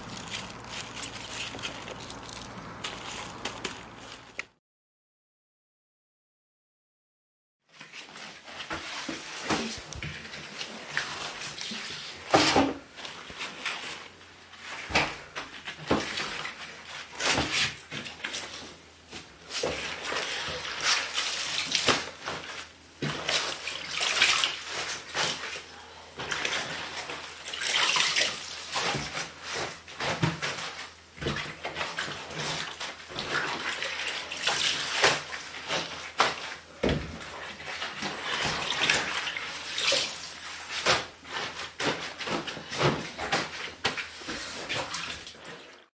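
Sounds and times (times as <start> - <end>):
wet leaves rustling: 0.0 - 4.4.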